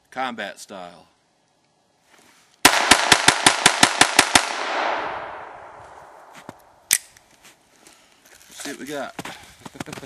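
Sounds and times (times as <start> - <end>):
pistol shots with echo: 2.7 - 6.3.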